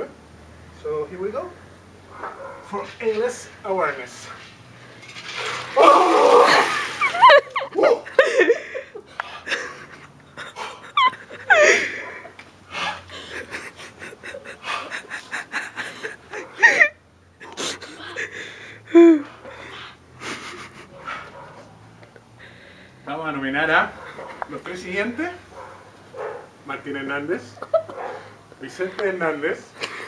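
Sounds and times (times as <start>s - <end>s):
man laughing: 6.5s - 19.3s, 20.2s - 20.9s, 27.4s - 28.0s.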